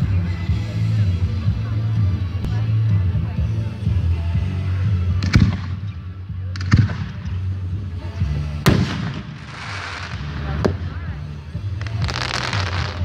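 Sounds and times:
fireworks crackling hiss: 8.3s - 13.0s
fireworks bangs: 8.6s - 11.1s, 11.8s - 13.0s.

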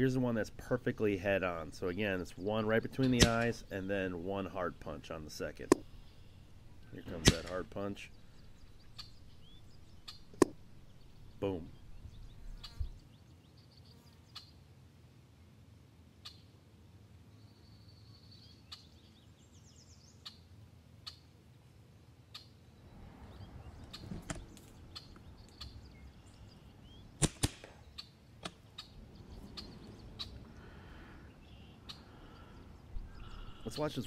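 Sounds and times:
bird chirp: 0.0s - 14.6s, 22.3s - 34.0s
air rifle shots: 3.0s - 3.8s, 5.6s - 9.4s, 27.2s - 27.8s.

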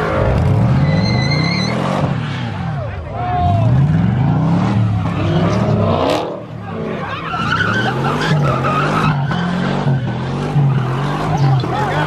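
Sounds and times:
car engines revving: 0.0s - 12.0s
tyres screeching: 4.2s - 12.0s.

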